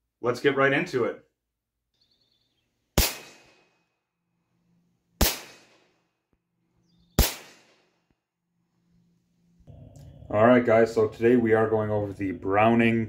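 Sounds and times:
pistol shots sharp crack: 3.0 - 3.8, 5.2 - 6.0, 7.1 - 8.0.

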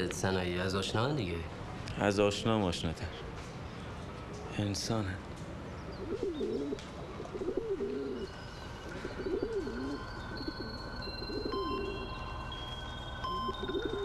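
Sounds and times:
pigeon cooing: 6.0 - 12.1, 13.3 - 14.0
faint high tones: 7.7 - 14.0.

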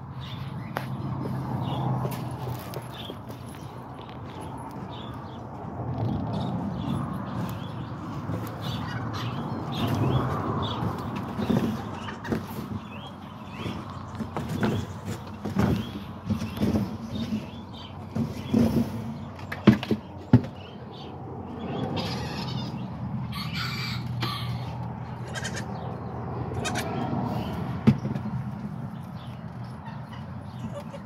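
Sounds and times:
goats bleating: 25.2 - 25.7, 26.5 - 26.9.

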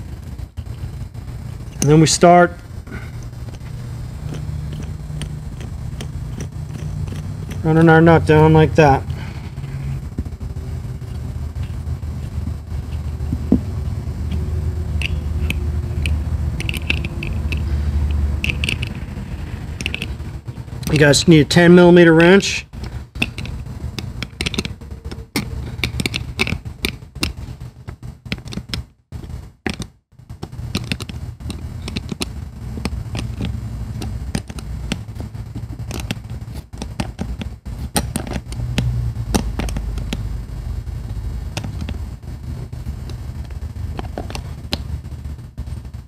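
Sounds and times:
wrench clicking and scraping: 3.2 - 8.1, 14.3 - 21.2, 22.2 - 27.4, 28.3 - 40.3
hands rubbing on tire rubber: 10.9 - 20.2.

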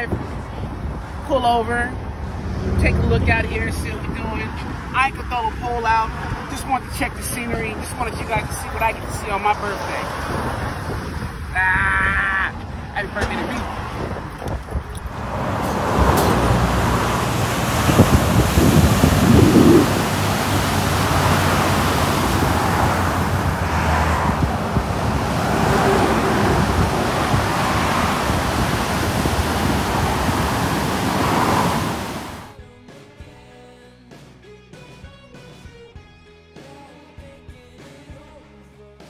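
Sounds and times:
wind rumbling on microphone: 0.0 - 32.5
surf breaking over rocks: 15.2 - 32.5.

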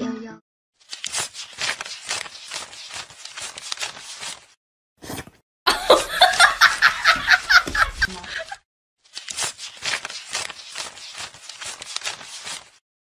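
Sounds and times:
person laughing: 5.7 - 8.6.

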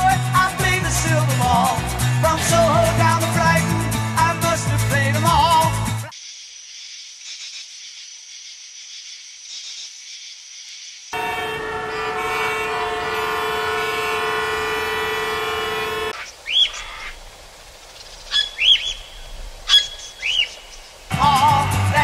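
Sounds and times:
vehicle horn: 11.2 - 16.2.

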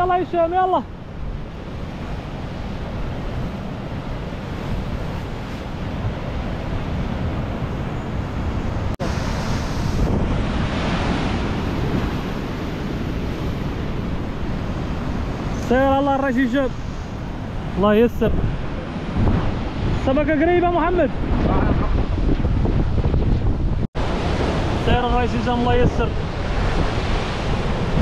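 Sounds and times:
wind buffeting microphone: 0.9 - 15.6, 16.6 - 28.0.

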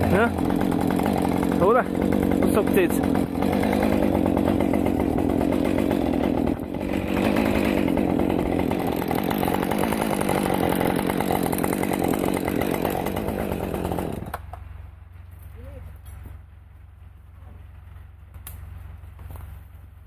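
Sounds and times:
chainsaw engine running: 0.0 - 14.6.

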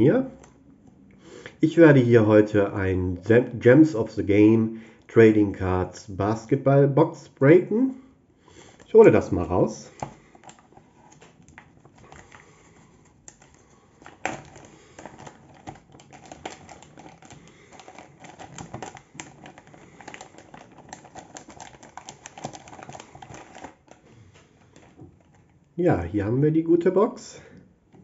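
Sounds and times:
plastic zip bag crinkling: 8.6 - 25.7.

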